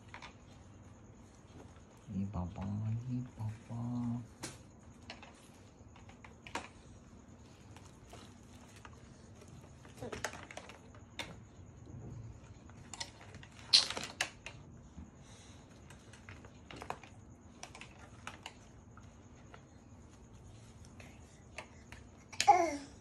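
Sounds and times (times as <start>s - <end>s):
plastic and cloth rustling: 0.0s - 11.5s.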